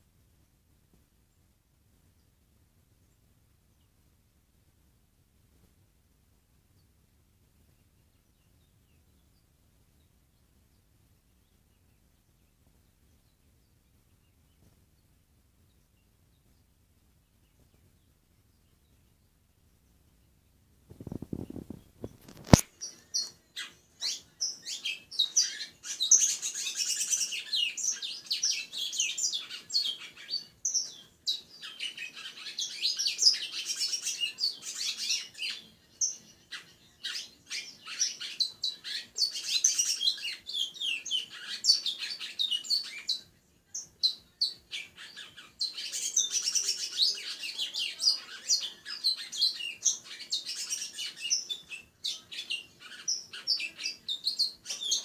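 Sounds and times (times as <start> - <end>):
bird chirps: 7.6 - 55.0
songbird singing fast high song: 21.0 - 43.2.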